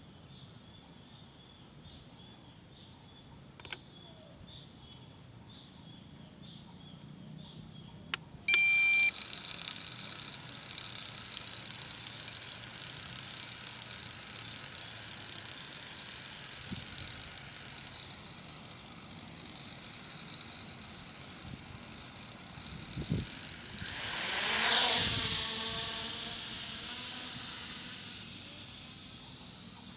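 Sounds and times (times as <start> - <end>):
short loud electronic beep: 8.5 - 9.1.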